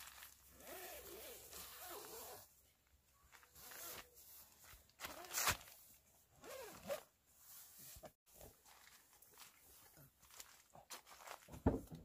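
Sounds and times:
plastic tarp crinkling underfoot: 0.0s - 2.4s, 3.3s - 6.9s, 8.3s - 11.8s.

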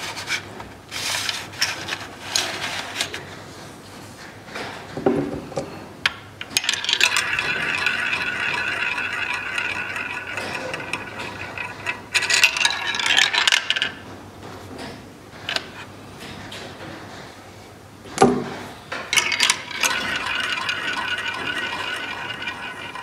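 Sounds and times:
small balls rolling and rattling: 6.4s - 14.1s, 19.0s - 23.0s.

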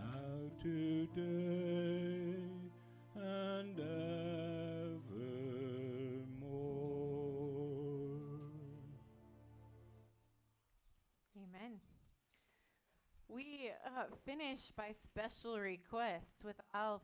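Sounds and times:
singers holding notes with vibrato: 0.0s - 10.0s
keyboard accompaniment: 0.0s - 10.2s.

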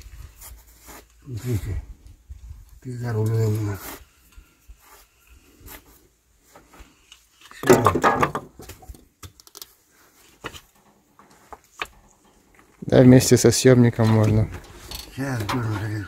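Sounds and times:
screw and handle clicks and scrapes: 9.2s - 9.8s, 14.1s - 15.7s.

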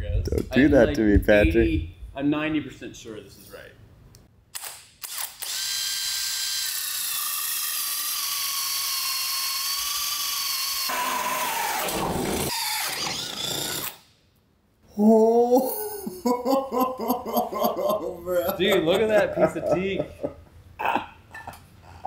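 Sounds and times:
man talking: 0.0s - 3.8s, 17.4s - 20.3s
drill whining through wood: 5.0s - 14.1s.

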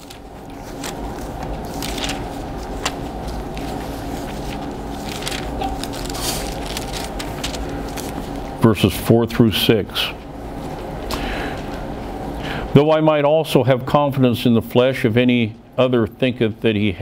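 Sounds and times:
paper pages rustling: 0.0s - 8.6s
low hum: 0.0s - 12.8s.

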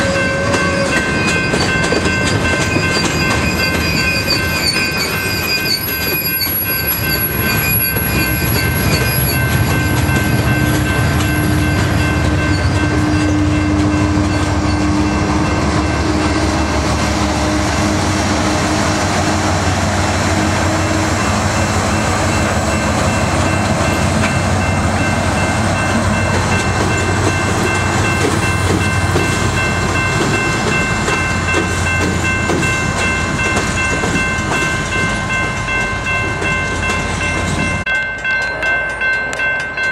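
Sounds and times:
high ringing: 0.0s - 16.8s
diesel locomotive engine drone: 0.0s - 39.9s
train wheels rolling over rails: 0.0s - 39.9s.

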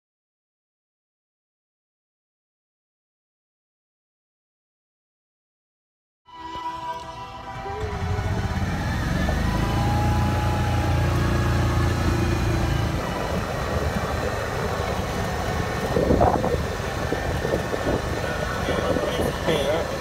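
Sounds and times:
golf cart motor rumble: 7.0s - 20.0s.

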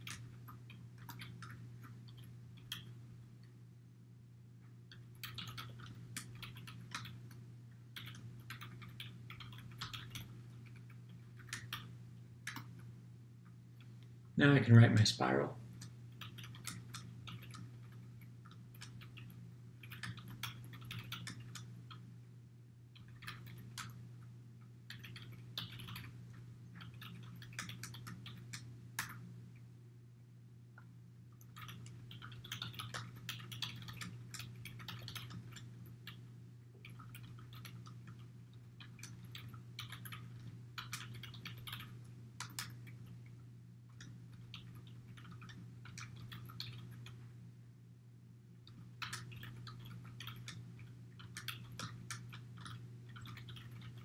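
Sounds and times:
computer keyboard typing: 0.0s - 3.0s, 4.9s - 12.9s, 15.8s - 22.0s, 23.0s - 24.0s, 24.9s - 29.2s, 31.4s - 43.2s, 43.9s - 47.2s, 48.7s - 54.0s
steady low hum: 0.0s - 54.0s.

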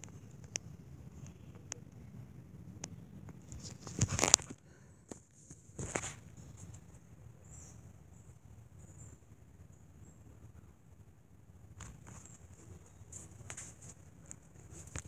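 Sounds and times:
faint clicks: 0.0s - 2.1s
rustling handling noise: 3.4s - 7.0s, 11.8s - 15.0s.

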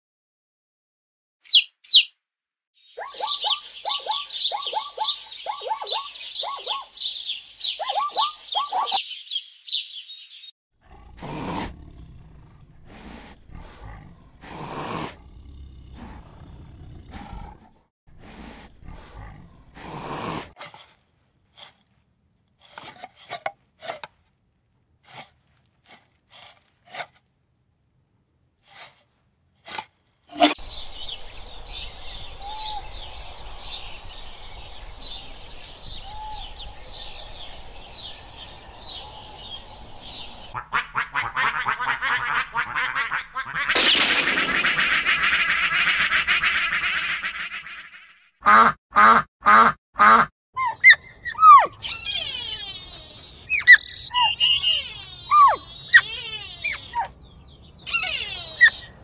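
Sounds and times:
animal and bird calls: 1.4s - 2.1s, 2.8s - 20.5s, 30.4s - 48.2s, 50.6s - 59.0s
rapid high chirping: 50.9s - 57.1s.

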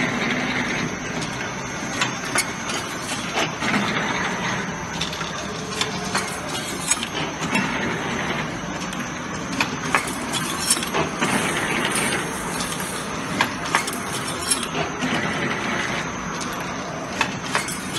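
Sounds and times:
machine clattering: 1.2s - 17.9s
sharp clicks and clinks: 8.9s - 14.8s.

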